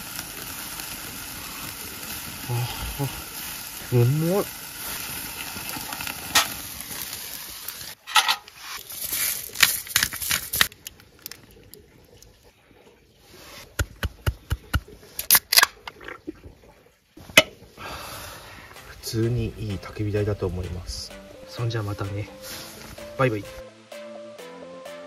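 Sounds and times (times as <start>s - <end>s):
steak sizzling on a grill: 0.0s - 8.0s, 8.6s - 10.7s, 22.4s - 23.4s.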